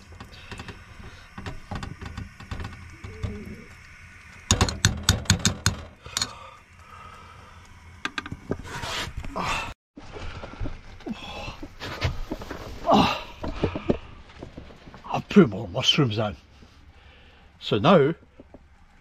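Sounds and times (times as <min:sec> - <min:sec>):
rustle: 0:11.7 - 0:17.4.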